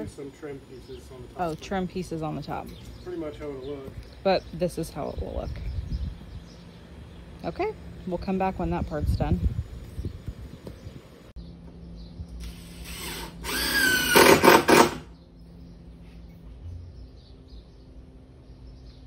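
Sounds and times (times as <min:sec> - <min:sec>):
power drill into wood: 0:12.4 - 0:15.1.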